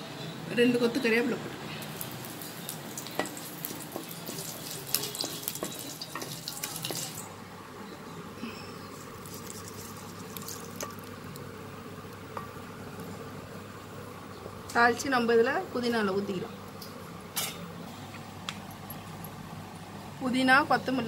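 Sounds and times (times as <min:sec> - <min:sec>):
seeds crackling in hot oil: 0:00.8 - 0:15.1.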